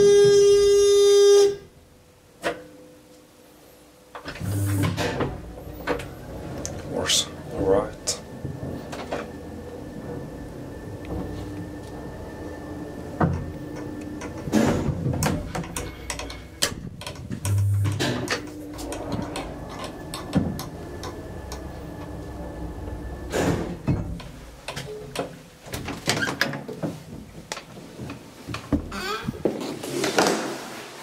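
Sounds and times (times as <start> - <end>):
elevator hum: 3.9 - 26.3
elevator doors clicking and clattering: 4.2 - 29.0.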